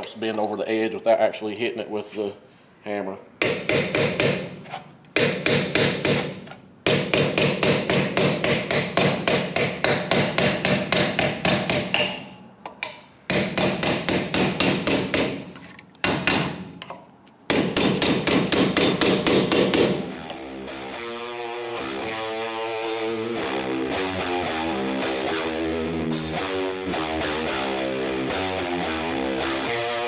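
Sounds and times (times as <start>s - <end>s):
hammer striking metal: 3.4s - 4.6s, 5.2s - 20.1s.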